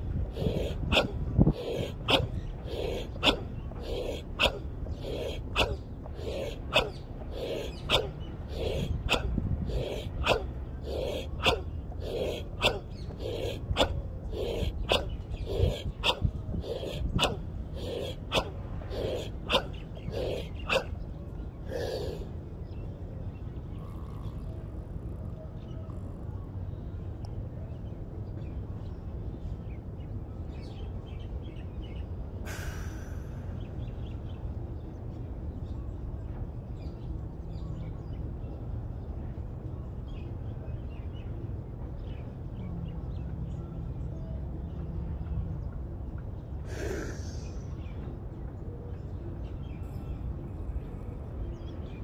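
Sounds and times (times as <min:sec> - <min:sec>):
low beach rumble: 0:00.0 - 0:28.2
short breathy rushes: 0:00.2 - 0:20.9, 0:32.5 - 0:33.7, 0:46.6 - 0:47.9.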